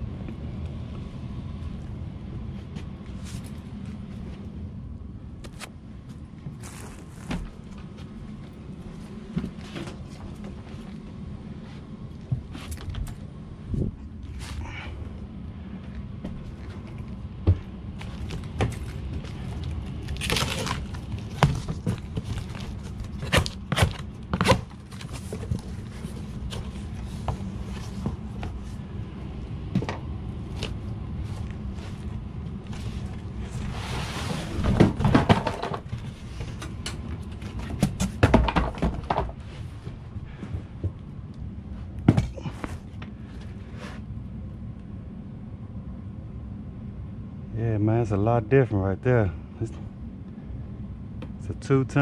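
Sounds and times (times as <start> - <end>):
steady low hum: 0.0 - 52.0
scraping or rustling: 32.8 - 36.8.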